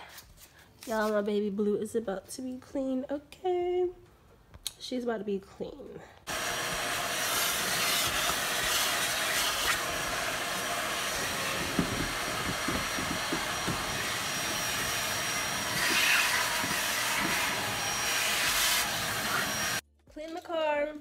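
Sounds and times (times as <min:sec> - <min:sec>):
vacuum cleaner sucking: 0:06.3 - 0:19.8.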